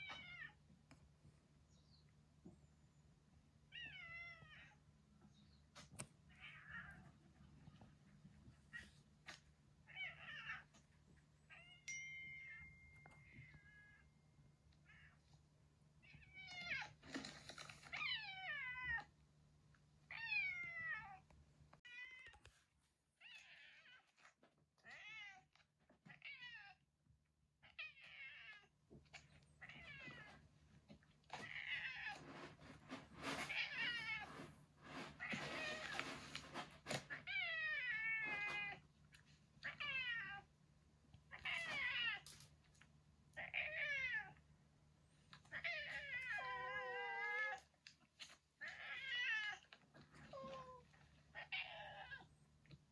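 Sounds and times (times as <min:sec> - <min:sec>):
cat yowling: 0:45.6 - 0:47.6.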